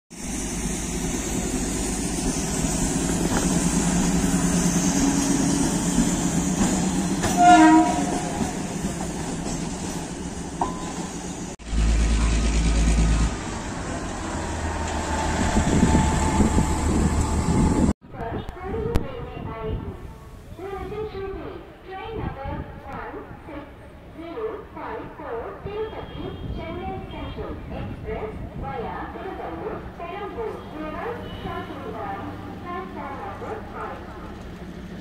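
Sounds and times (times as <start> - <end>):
rail vehicle engine and wheels: 0.1 - 35.0
horn blast: 7.3 - 8.5.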